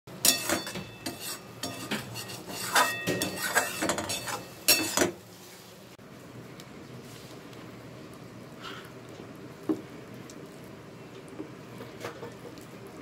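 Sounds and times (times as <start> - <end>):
metal spatula scraping a pan: 0.2 - 5.2.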